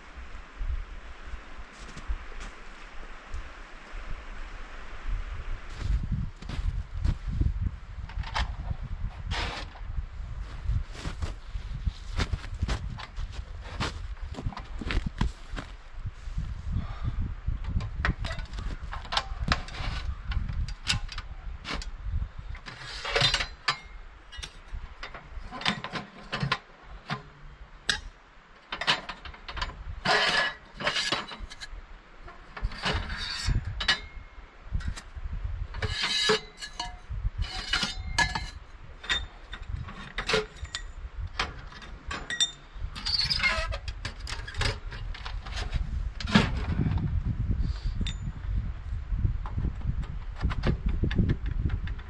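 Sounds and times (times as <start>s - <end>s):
metal stove clinking and scraping: 22.6s - 28.1s, 28.7s - 31.7s, 32.3s - 35.0s, 35.7s - 46.8s, 48.0s - 48.3s.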